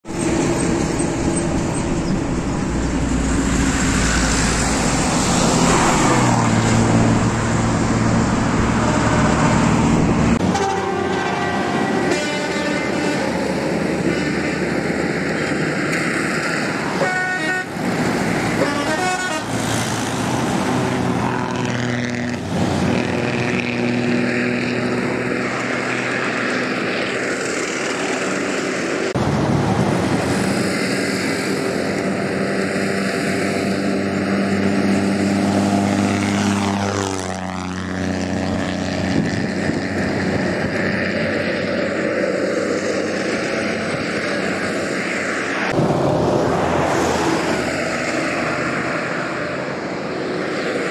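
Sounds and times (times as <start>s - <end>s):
diesel bus engines: 0.0s - 50.9s
rapidly pulsing horn: 10.4s - 14.7s, 16.9s - 17.7s, 18.5s - 19.6s.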